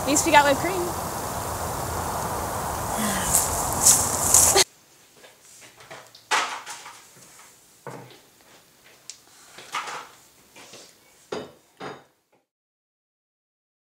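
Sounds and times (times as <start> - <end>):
light knocks and clatters in kitchen: 5.2 - 9.0, 9.6 - 12.5.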